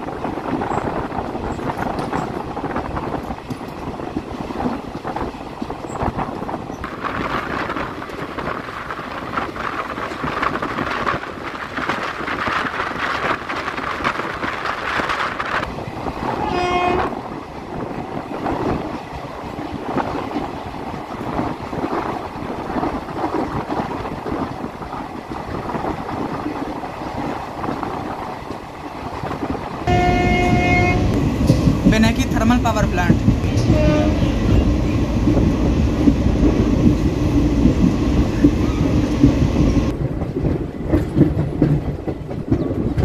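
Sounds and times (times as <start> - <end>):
train wheels on rails: 0.0 - 43.0
train horn: 16.3 - 17.2, 29.8 - 31.2, 33.5 - 34.6.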